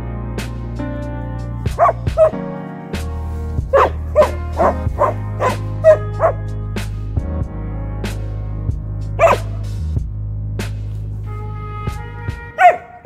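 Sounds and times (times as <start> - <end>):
background music: 0.0 - 13.0
puppy barking: 1.8 - 2.4, 3.7 - 6.4, 9.2 - 9.6, 12.6 - 13.0.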